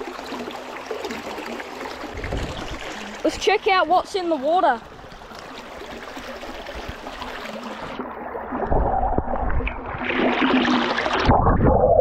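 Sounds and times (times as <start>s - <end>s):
creek water running: 0.0s - 11.4s
underwater rumbling and gurgling: 2.0s - 3.0s, 4.9s - 12.0s.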